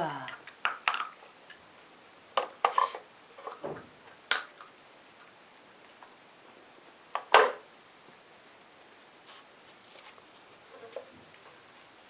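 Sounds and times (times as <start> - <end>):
wooden puzzle pieces clacking: 0.3 - 1.2.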